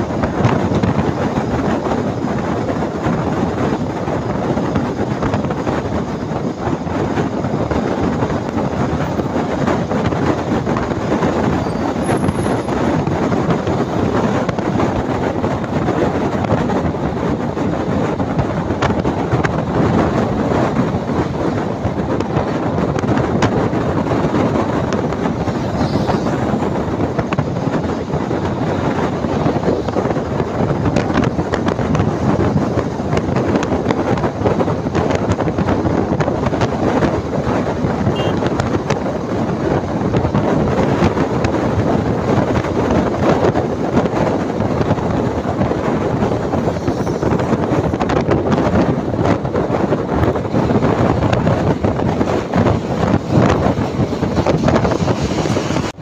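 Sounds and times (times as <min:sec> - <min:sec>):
wind and road noise inside bus: 0:00.0 - 0:56.0
wind buffeting microphone: 0:00.0 - 0:56.0.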